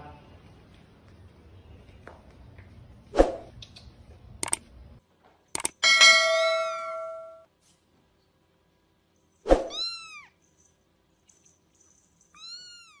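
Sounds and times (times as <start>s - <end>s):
sharp click: 3.5s - 4.6s, 5.6s - 5.8s.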